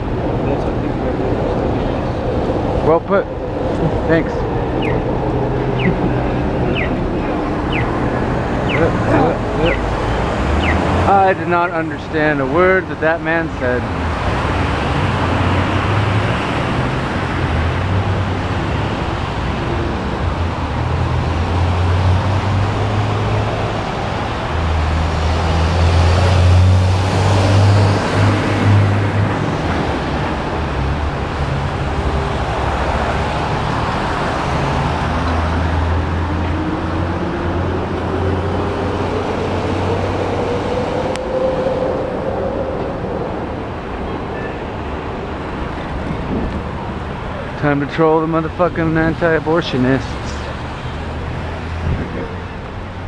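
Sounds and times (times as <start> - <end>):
vehicle rising whine: 0.0 - 11.5, 21.2 - 47.8
low traffic rumble: 0.0 - 53.0.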